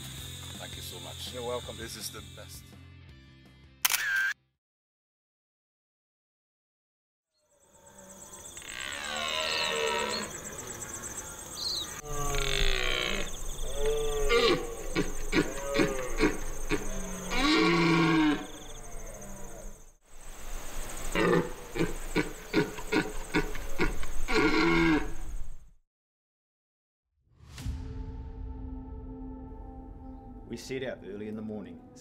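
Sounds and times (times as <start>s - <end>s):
deer stag roaring and grunting: 8.2s - 19.8s, 21.1s - 25.2s.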